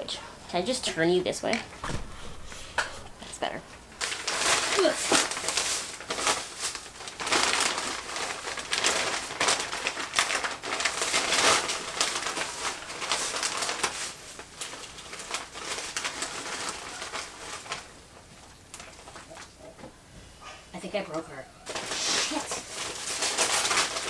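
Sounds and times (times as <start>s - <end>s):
paper wrapping crinkling and tearing: 3.9s - 19.6s, 21.7s - 24.0s.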